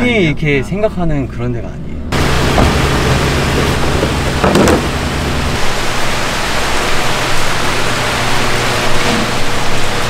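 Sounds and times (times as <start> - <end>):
low machine hum: 1.3 - 10.0
running water and aeration: 2.1 - 10.0.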